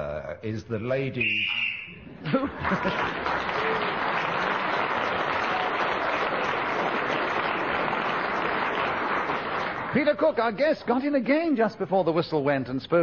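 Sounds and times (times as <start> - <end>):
studio audience applauding: 2.3 - 10.6.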